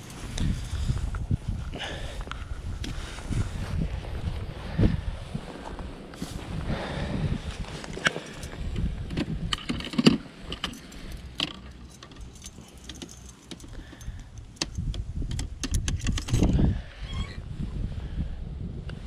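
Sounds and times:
wind rumble on microphone: 0.0s - 11.4s, 13.7s - 19.0s
metallic clicks and jingling: 8.0s - 16.6s.

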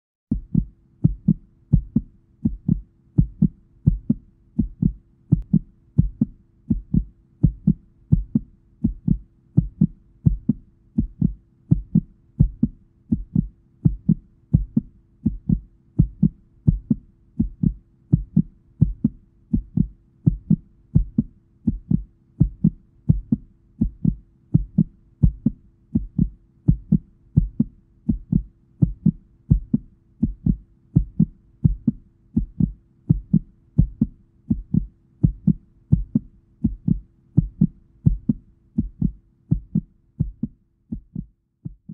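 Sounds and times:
heartbeat: 0.3s - 41.9s.

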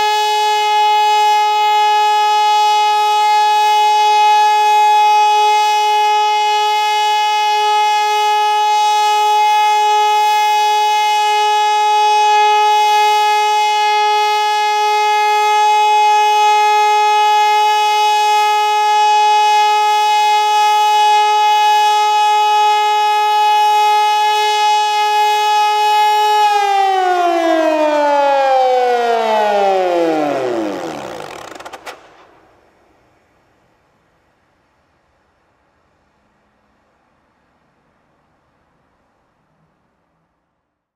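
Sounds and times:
siren steady tone: 0.0s - 31.9s.

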